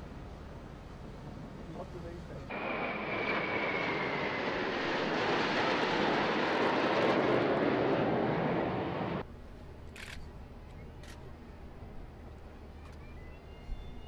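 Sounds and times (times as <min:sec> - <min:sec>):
military aircraft flying past: 0:02.5 - 0:09.2.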